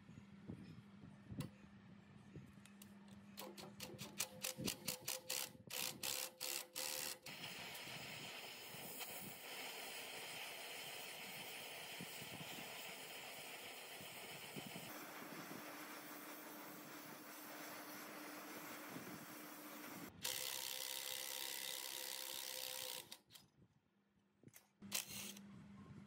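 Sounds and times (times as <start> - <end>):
sharp metallic clicks: 2.7 - 7.3
short rasping bursts: 3.4 - 23.3
torch flame hissing: 7.3 - 20.1.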